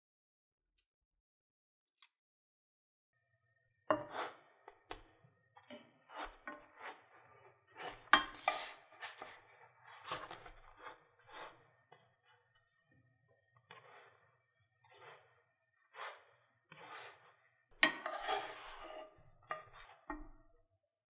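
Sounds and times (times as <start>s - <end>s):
spatula scraping a frying pan: 3.9s - 20.4s.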